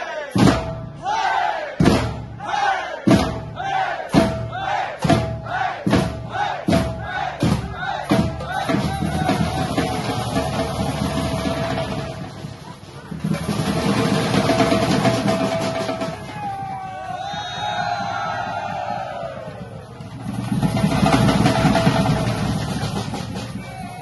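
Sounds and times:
drums struck in unison: 0:00.3 - 0:24.0
group shouting calls: 0:01.0 - 0:01.8, 0:02.4 - 0:10.7.

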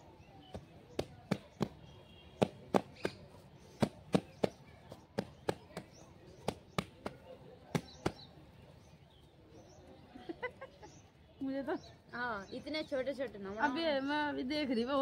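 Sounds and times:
hands slapping cow dung: 0:05.2 - 0:08.2.

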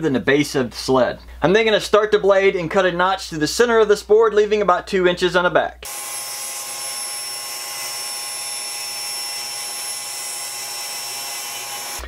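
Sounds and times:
table saw whining: 0:05.8 - 0:12.0.

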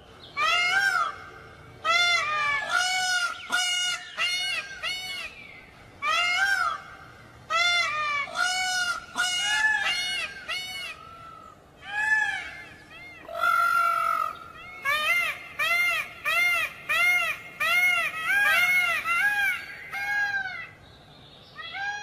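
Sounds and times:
peafowl honking calls: 0:06.0 - 0:20.8.

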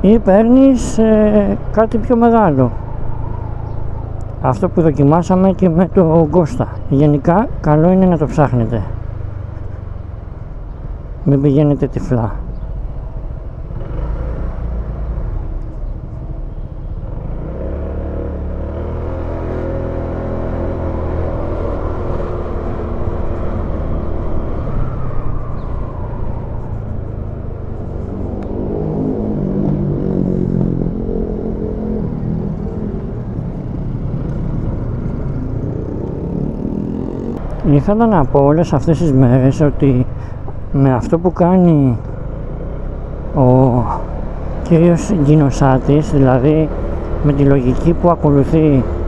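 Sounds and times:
road noise: 0:00.0 - 0:49.0
wind: 0:00.0 - 0:49.0
scooter engine running: 0:33.4 - 0:37.5.

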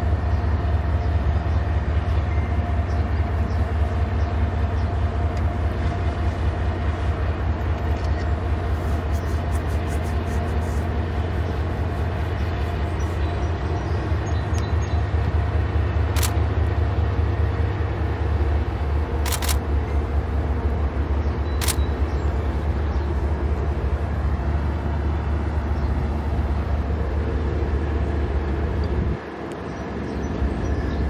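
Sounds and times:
freight train rumbling by: 0:00.0 - 0:31.0
sharp clicks: 0:19.2 - 0:19.6, 0:21.6 - 0:21.9.

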